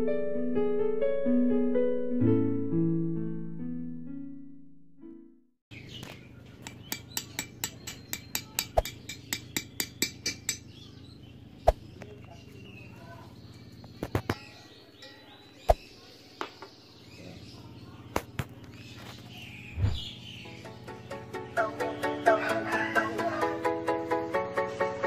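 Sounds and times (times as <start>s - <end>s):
hammer tapping on metal: 6.6s - 10.7s.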